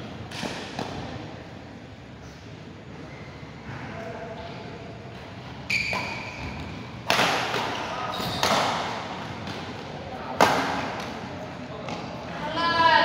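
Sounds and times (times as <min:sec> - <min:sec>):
racket hitting shuttlecock: 0:05.9 - 0:11.2.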